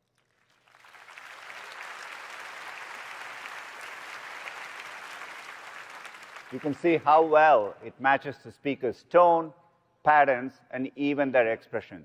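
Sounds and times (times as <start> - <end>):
large audience applauding: 0.0 - 7.4.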